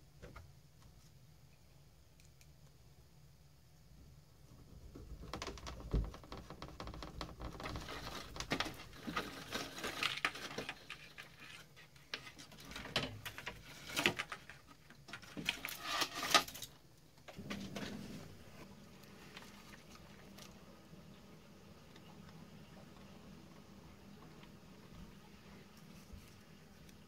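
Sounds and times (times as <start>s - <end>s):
wire rustling against plywood: 4.9s - 20.8s.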